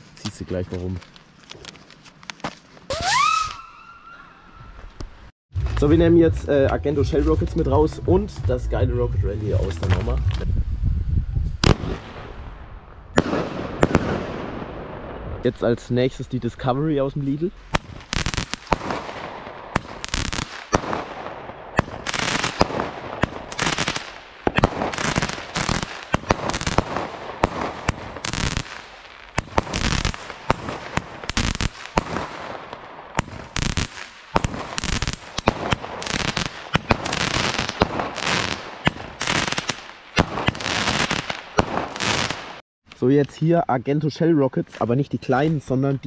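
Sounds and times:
fireworks bangs: 0:02.9 - 0:04.2, 0:11.6 - 0:16.1, 0:17.5 - 0:42.6.

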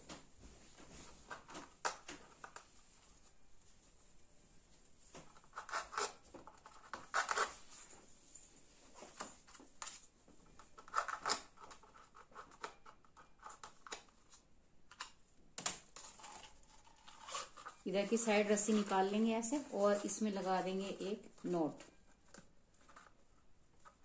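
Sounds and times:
rope scraping through cup: 0:16.0 - 0:17.9.

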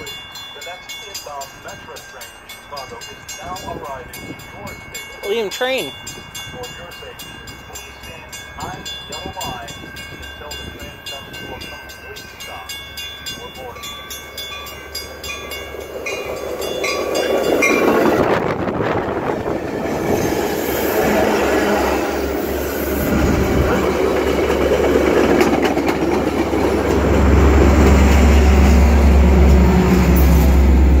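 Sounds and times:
diesel locomotive drone: 0:00.0 - 0:31.0
train wheels rumbling on rails: 0:14.5 - 0:31.0.

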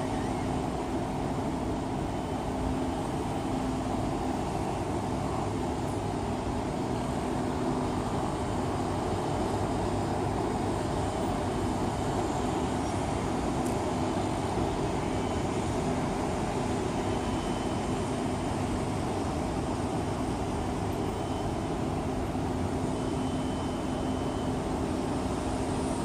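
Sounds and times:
city traffic hum: 0:00.0 - 0:26.0.

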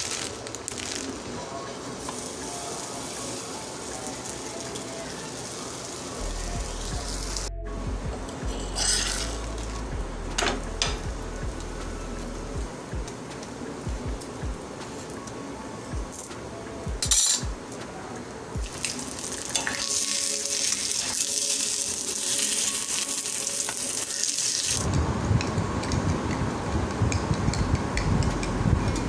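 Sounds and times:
egg sizzling in oil: 0:00.0 - 0:07.5, 0:18.6 - 0:24.9
metal spatula clacking on griddle: 0:17.0 - 0:17.5.

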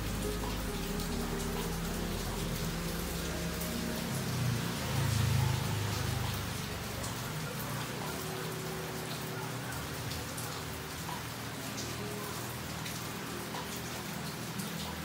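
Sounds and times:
rain falling on foliage: 0:00.0 - 0:15.0.

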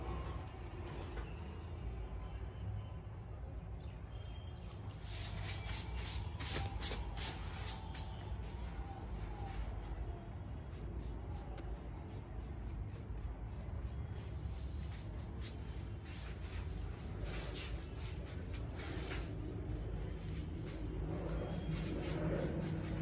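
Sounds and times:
hair brush swishing: 0:05.0 - 0:10.0.

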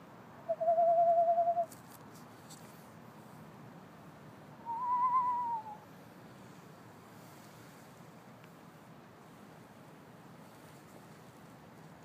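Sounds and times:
owl trilled whistles: 0:00.5 - 0:01.7, 0:04.6 - 0:05.8.

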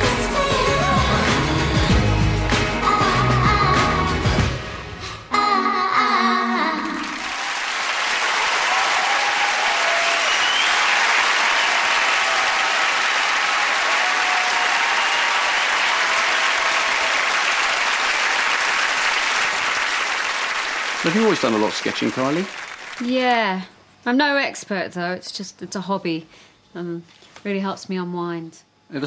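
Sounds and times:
pop song with singing: 0:00.0 - 0:07.2
audience applauding: 0:07.0 - 0:23.3.

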